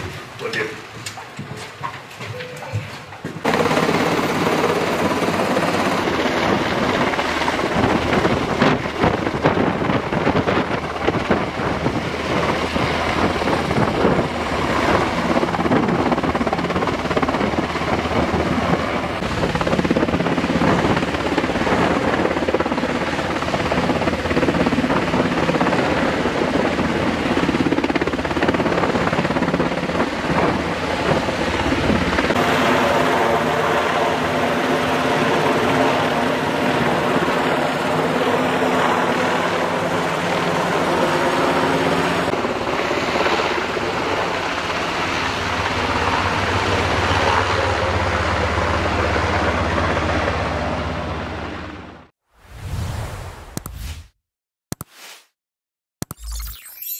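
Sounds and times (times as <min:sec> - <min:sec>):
helicopter rotor chopping overhead: 0:02.2 - 0:52.1.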